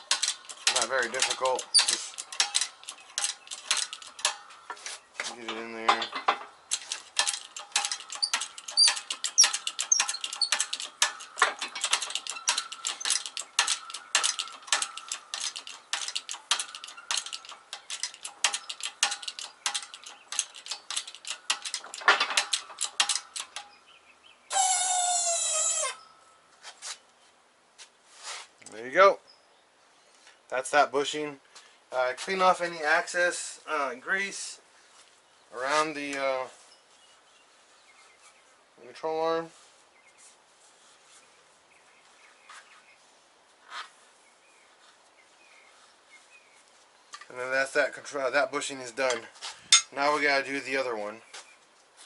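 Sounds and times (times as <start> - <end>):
clicks and ticks of metal parts: 0.0 - 23.8, 47.1 - 47.9, 48.6 - 50.0
loud metal squeal: 24.5 - 26.1.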